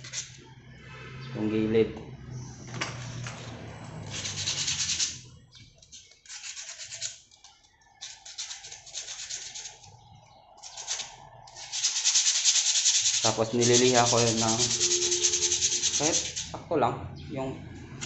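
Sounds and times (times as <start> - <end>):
sandpaper rubbing: 4.1 - 5.2, 6.2 - 7.2, 8.2 - 9.8, 10.6 - 16.6.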